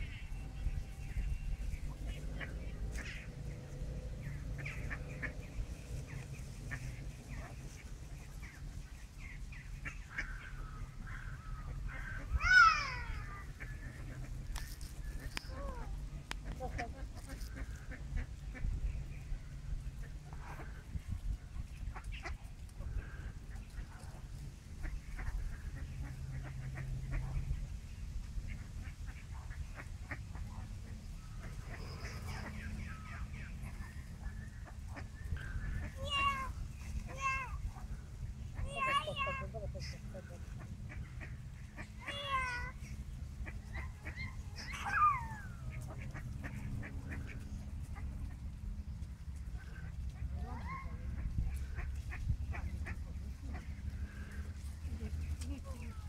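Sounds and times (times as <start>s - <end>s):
ducks quacking: 0.0s - 56.0s
low background rumble: 0.0s - 56.0s
drawn-out duck cry falling in pitch: 1.8s - 7.8s, 9.7s - 18.6s, 31.2s - 48.4s
toddler squealing: 44.6s - 45.5s.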